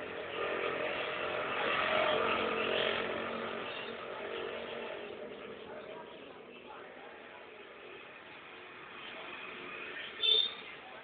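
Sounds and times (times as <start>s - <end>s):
motor vehicle passing: 0.0s - 11.0s.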